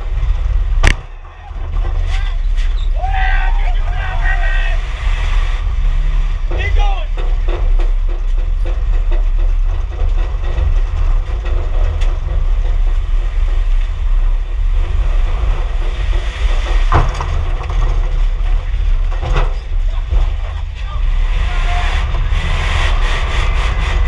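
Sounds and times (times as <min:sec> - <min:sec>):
road and wind rumble in car: 0:00.0 - 0:24.0
sharp crack: 0:00.7 - 0:02.7.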